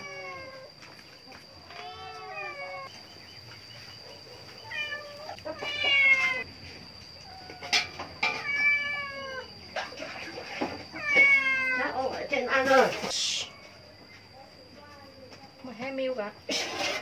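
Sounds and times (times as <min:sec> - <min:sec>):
cat meowing: 0:04.6 - 0:06.5, 0:07.2 - 0:09.5, 0:10.9 - 0:12.0.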